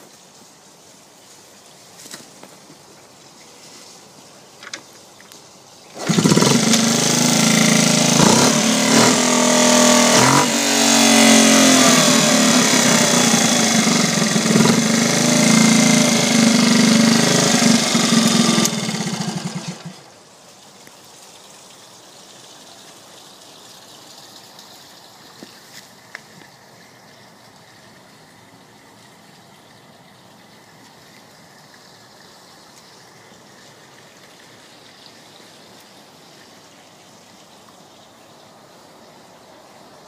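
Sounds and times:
small motorcycle engine running: 0:06.0 - 0:20.1.

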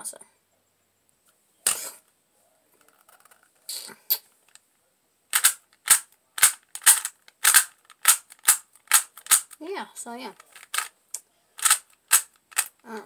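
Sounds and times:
puzzle cube layers clacking: 0:05.3 - 0:09.6, 0:10.3 - 0:10.9, 0:11.6 - 0:13.0.

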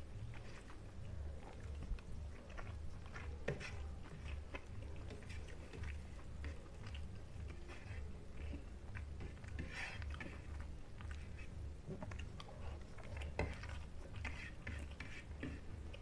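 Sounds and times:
person chewing food: 0:00.0 - 0:16.0.

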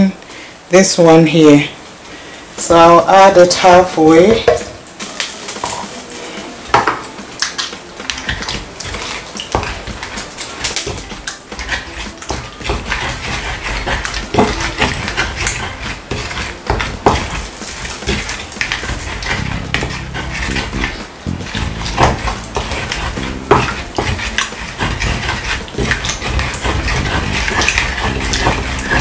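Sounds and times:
pestle grinding in clay bowl: 0:06.7 - 0:29.0
wood knocking against clay: 0:10.7 - 0:29.0.

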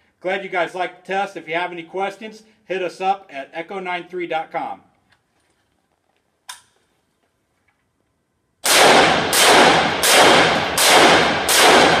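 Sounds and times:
rifle shots echoing indoors: 0:08.6 - 0:12.0.

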